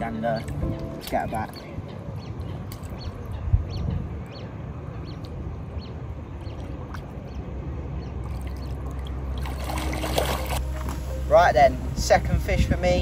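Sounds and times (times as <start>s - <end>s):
low rumble: 1.8s - 13.0s
water sloshing around waders: 6.4s - 11.1s.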